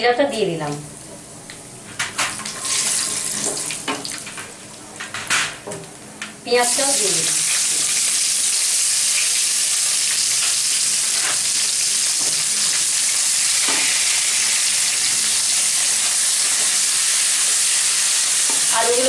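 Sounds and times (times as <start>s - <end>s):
onions sizzling in oil: 6.6s - 19.0s.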